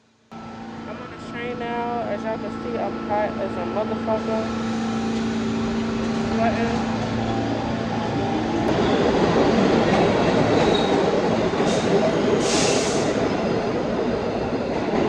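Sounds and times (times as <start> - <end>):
wheels rumbling on rail: 0.4 - 15.0
loud hiss: 12.4 - 13.2.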